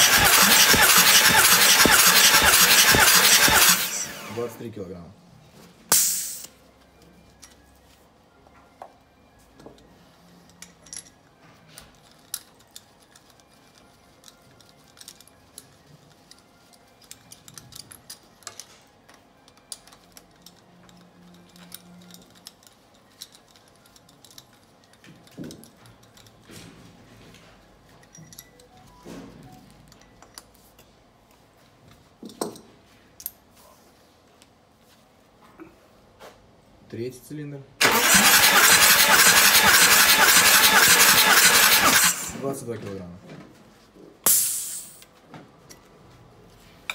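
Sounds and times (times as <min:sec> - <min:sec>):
pressure release hiss: 0:05.9 - 0:06.5, 0:44.3 - 0:45.0.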